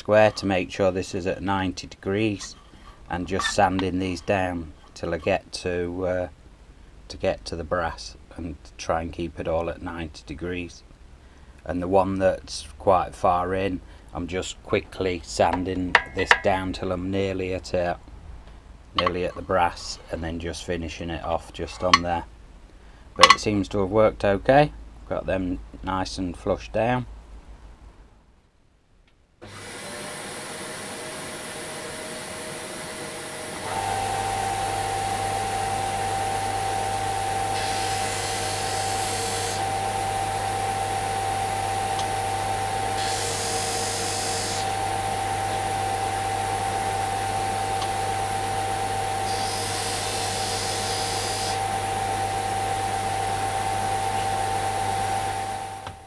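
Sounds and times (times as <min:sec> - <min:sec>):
sander motor hum: 0:29.4 - 0:56.0.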